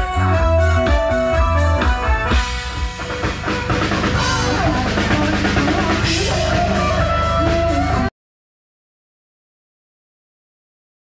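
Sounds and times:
band music with heavy bass drum: 0.0 - 8.1
woman singing into a microphone: 4.0 - 8.1.

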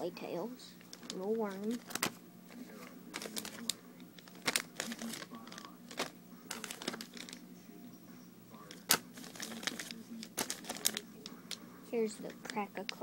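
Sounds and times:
plastic packaging crinkling: 0.8 - 7.4, 8.6 - 11.6.

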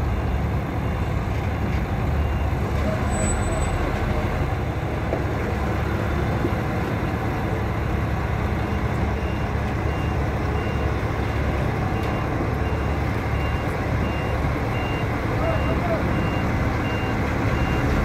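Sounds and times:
diesel truck engine running: 0.0 - 18.0
reversing alarm beeps: 2.2 - 3.7, 8.6 - 18.0.

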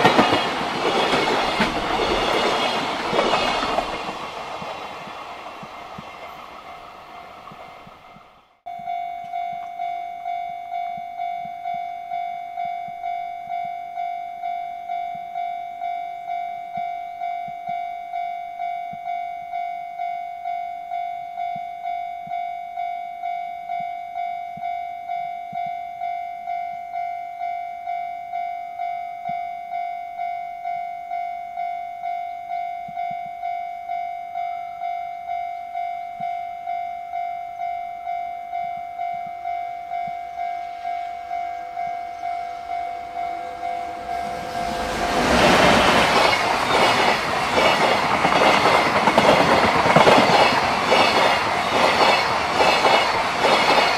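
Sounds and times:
freight train wagons rolling: 0.0 - 8.3, 40.7 - 53.9
level crossing warning bell: 8.7 - 53.9.

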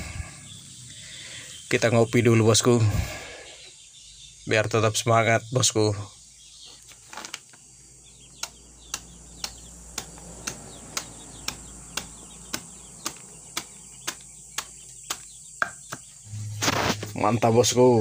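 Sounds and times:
knife chopping on wooden board: 8.4 - 16.1.

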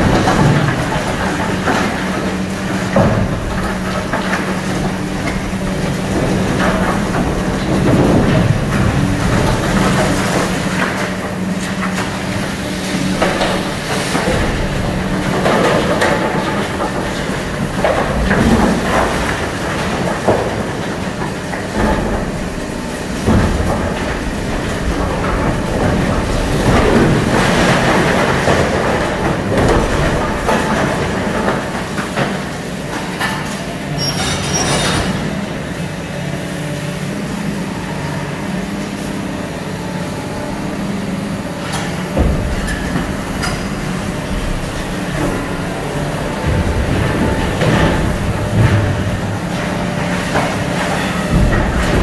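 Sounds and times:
falling rubble clattering: 0.0 - 35.2, 40.2 - 52.0
excavator running: 0.0 - 52.0
concrete crunching and cracking: 41.8 - 52.0.

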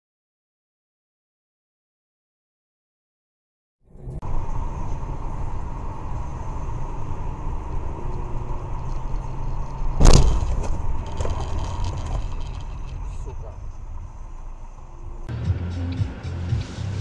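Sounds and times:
car road and engine rumble: 3.9 - 17.0
faint steady whine: 4.2 - 15.3
loud thump: 10.0 - 10.9.

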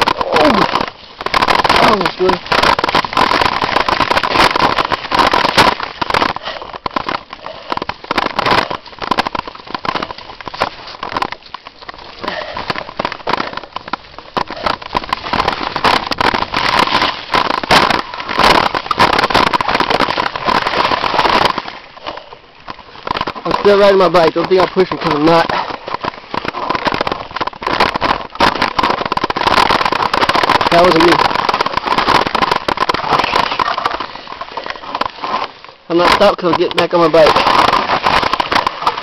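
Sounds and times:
bike rattling over bumps: 0.0 - 39.0.

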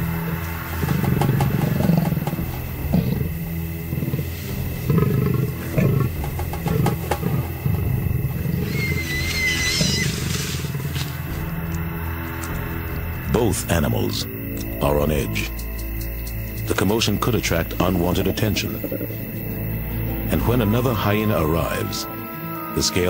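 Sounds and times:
animals growling and snarling: 0.0 - 23.0.

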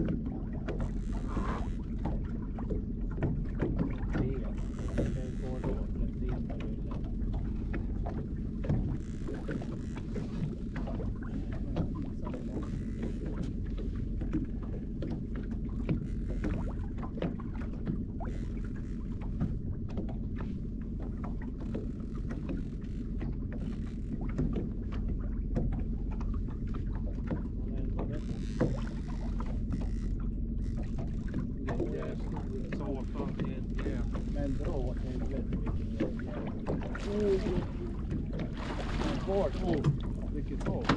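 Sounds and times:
outboard motor running: 0.0 - 40.9
water washing along hull: 0.0 - 40.9
knocks and clicks of gear: 39.7 - 40.9.

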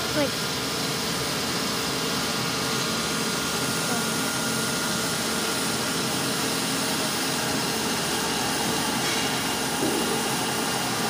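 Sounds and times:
beveling machine running: 1.0 - 11.0.

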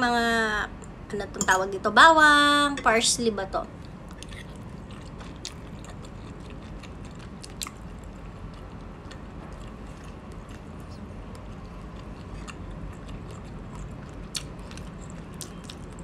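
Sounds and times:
steady low hum: 0.0 - 16.0
person chewing food: 3.8 - 16.0.

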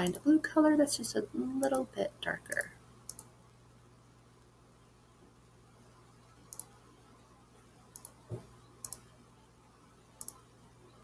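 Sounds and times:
faint low hum: 0.0 - 11.0
computer mouse clicks: 2.5 - 3.3, 6.4 - 6.8, 7.9 - 9.1, 10.2 - 10.5.

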